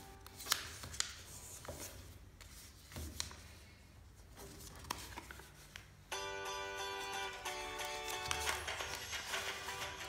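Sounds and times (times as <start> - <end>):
paper rustling and crackling: 0.2 - 3.5, 4.3 - 5.9, 7.9 - 9.9.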